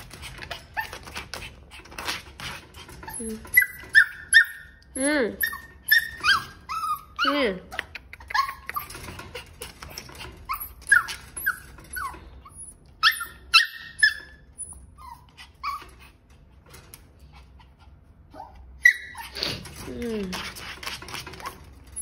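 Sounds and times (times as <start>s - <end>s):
small dog whining and yipping: 3.1s - 4.8s, 5.4s - 7.4s, 8.2s - 9.0s, 10.4s - 16.0s, 18.3s - 19.6s.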